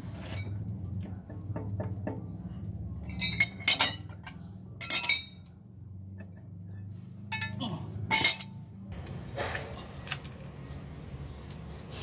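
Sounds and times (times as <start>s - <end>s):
steel flywheel clanking on metal: 3.0s - 5.5s, 7.3s - 8.6s.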